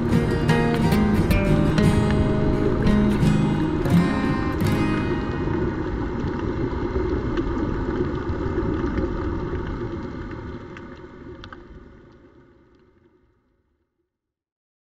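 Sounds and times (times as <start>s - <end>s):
underwater low rumble: 0.0s - 13.8s
faint clicks: 5.5s - 13.1s.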